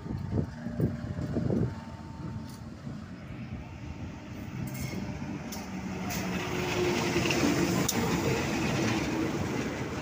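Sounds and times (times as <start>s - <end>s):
locomotive engine hum: 0.0s - 10.0s.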